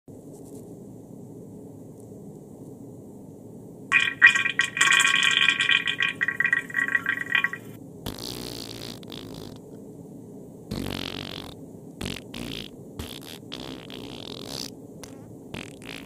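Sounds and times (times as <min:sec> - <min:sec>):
spluttering burst: 0:03.9 - 0:07.6.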